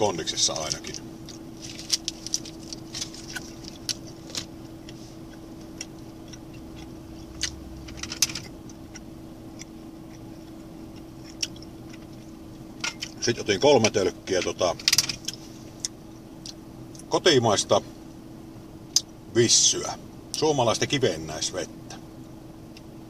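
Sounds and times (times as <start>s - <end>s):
steady low hum: 0.0s - 23.0s
plastic wrapper crackling: 1.6s - 4.4s.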